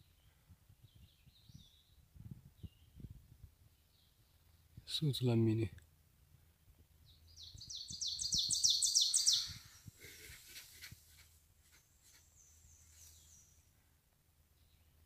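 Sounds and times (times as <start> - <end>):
songbird chirping: 0.0 - 5.8, 6.5 - 15.0
high thin bird trill: 7.6 - 9.9.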